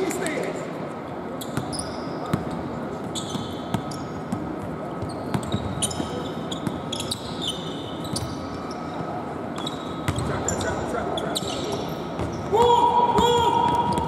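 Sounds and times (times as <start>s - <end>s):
sneaker squeaks: 1.2s - 14.0s.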